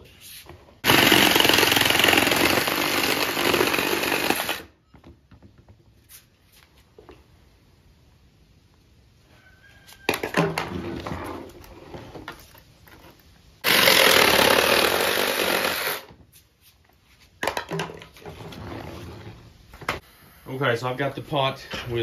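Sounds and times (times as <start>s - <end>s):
knocks and scraping: 9.7s - 13.6s, 16.0s - 20.1s.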